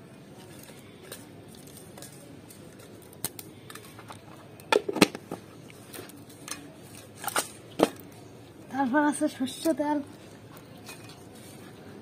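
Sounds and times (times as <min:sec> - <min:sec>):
stems and chillies snapping: 0:00.4 - 0:04.9, 0:05.6 - 0:08.2.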